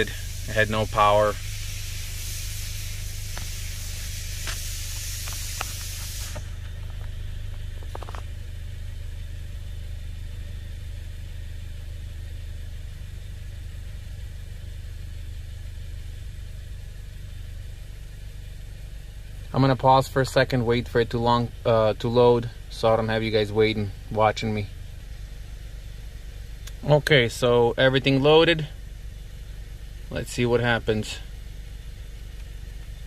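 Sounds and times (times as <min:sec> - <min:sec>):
short buzz: 0:00.0 - 0:06.8
high hiss: 0:00.0 - 0:07.7
steady low hum: 0:00.0 - 0:33.0.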